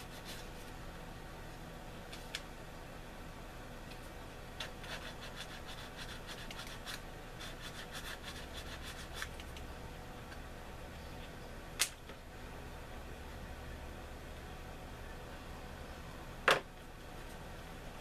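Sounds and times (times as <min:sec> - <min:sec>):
sanding stick rubbing plastic: 0:04.6 - 0:09.4.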